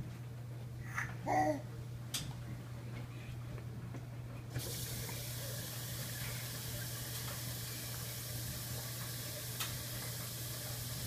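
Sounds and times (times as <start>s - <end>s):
water spraying into washing machine: 4.6s - 11.0s.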